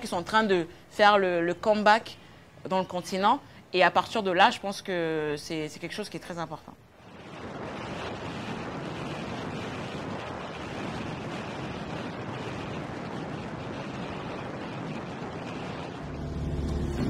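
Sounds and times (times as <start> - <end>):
road and wind noise: 6.8 - 17.0
low rumble inside vehicle: 13.7 - 17.0.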